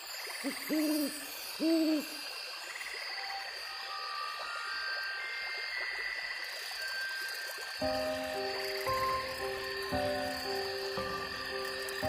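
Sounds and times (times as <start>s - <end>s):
owl hooting: 0.4s - 2.2s
flooded creek rushing: 7.8s - 12.0s.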